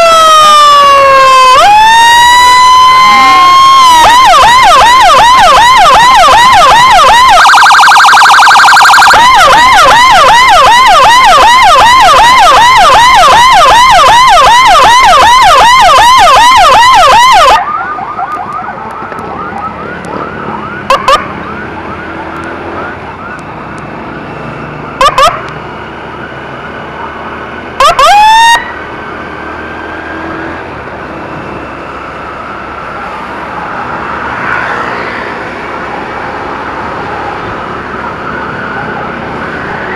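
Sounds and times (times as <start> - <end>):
short siren blips: 0.0 - 23.6, 24.2 - 25.5, 27.8 - 28.8
emergency siren yelping: 0.0 - 39.9
road and engine noise: 0.0 - 39.9.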